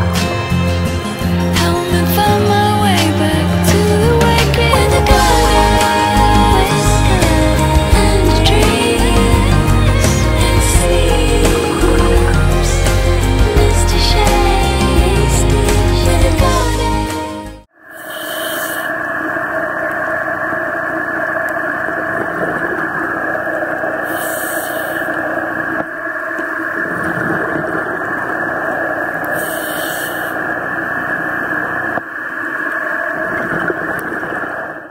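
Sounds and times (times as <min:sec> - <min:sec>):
muffled underwater rushing: 0:01.8 - 0:16.9, 0:18.7 - 0:34.9
scuba regulator breathing hiss: 0:18.0 - 0:18.9, 0:24.1 - 0:25.1, 0:29.4 - 0:30.4.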